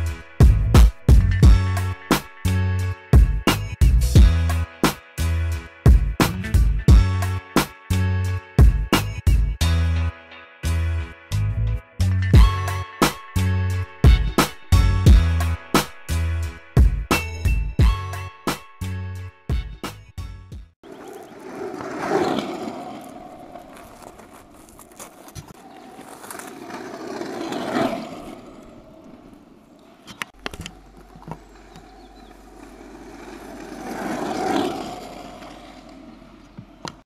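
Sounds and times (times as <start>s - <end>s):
motor scooters passing by: 20.9s - 36.8s.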